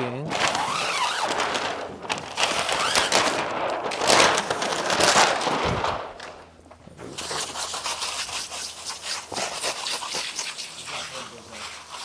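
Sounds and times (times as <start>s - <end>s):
film liner peeling crackle: 0.3s - 10.8s.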